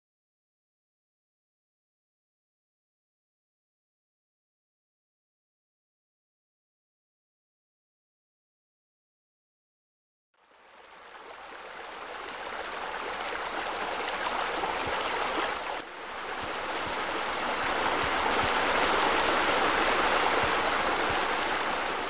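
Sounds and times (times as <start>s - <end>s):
water running and splashing: 10.8s - 22.0s.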